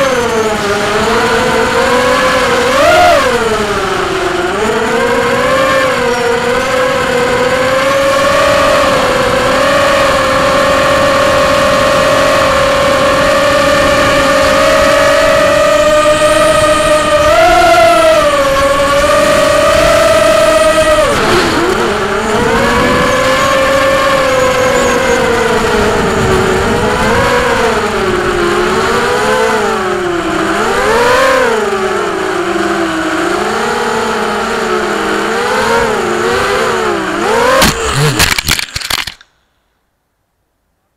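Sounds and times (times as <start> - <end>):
quadcopter motors whining: 0.0 - 39.2
quadcopter tumbling knocks: 21.0 - 24.3, 37.2 - 39.2.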